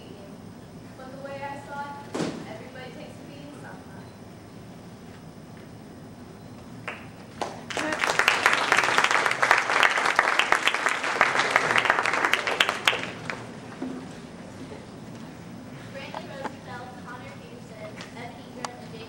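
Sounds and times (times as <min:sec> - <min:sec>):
audience applauding: 0:06.8 - 0:13.5.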